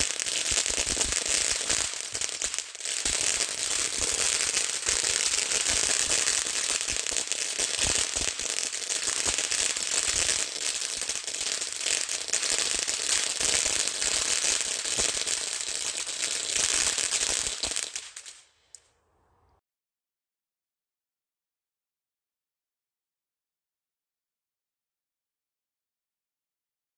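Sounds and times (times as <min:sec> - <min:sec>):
firework fountain crackling: 0:00.0 - 0:18.6.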